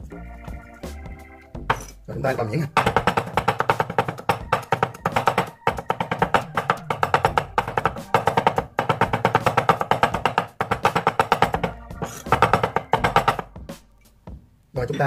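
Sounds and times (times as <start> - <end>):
cleaver chopping on wooden board: 2.7 - 13.5.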